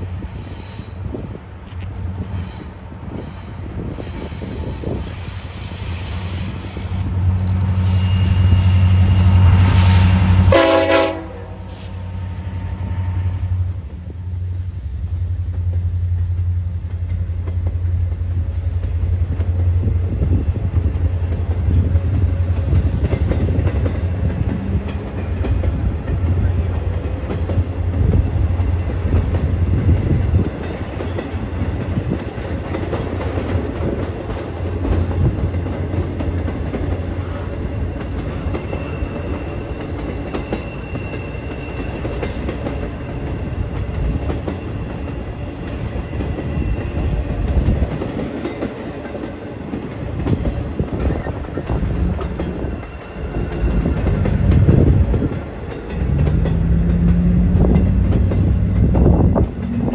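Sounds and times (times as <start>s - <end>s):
train wheels clattering on rails: 15.2s - 59.9s.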